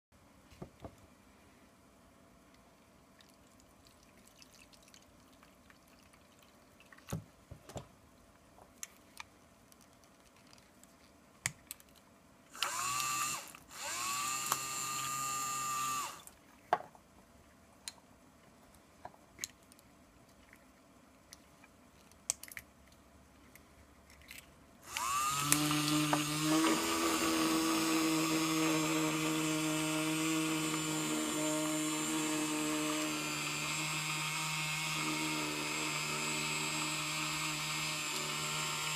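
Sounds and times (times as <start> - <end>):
electric pump motor whining: 12.6 - 16.2, 24.9 - 38.9.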